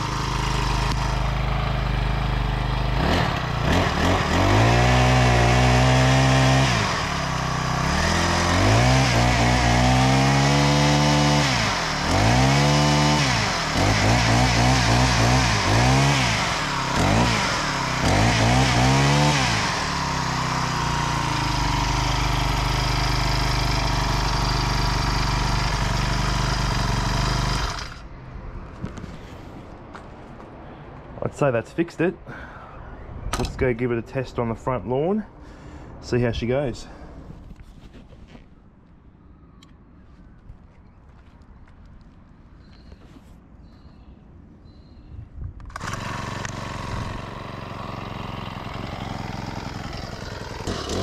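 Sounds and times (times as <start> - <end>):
small engine revving and idling: 0.0 - 28.1, 45.6 - 51.0.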